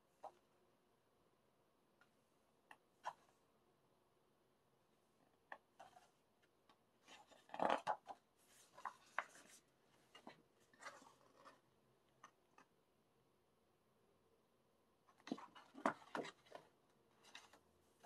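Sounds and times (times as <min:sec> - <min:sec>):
book pages turning: 0:07.1 - 0:11.6.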